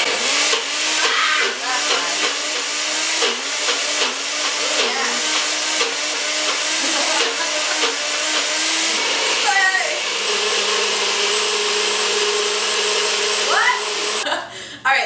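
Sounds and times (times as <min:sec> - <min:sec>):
blender motor whirring: 0:00.0 - 0:14.3.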